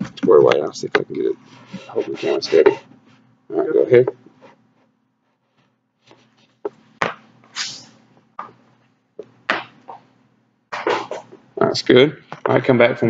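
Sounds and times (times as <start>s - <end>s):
feet thumping on floor: 6.1s - 7.3s, 8.4s - 10.1s.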